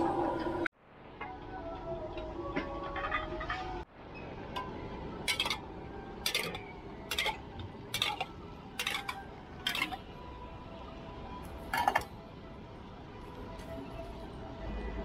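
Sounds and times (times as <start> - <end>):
steel utensils clinking: 4.6 - 10.1, 11.6 - 12.1.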